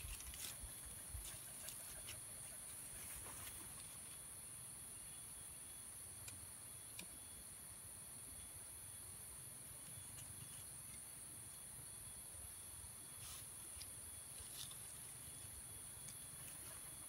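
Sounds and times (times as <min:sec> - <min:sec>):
insect chorus droning: 0:00.0 - 0:17.0.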